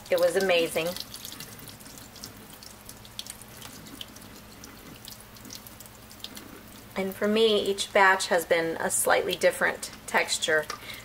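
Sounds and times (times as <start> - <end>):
liquid trickling into sink: 0.0 - 8.3
wet squishes of curds: 0.0 - 11.0.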